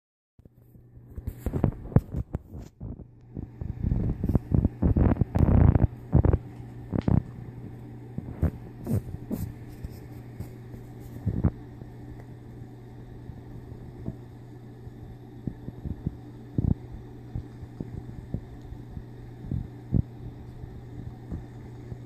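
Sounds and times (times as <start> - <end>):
steady low hum: 0.4 - 22.0
cats scuffling on carpet: 8.3 - 11.3.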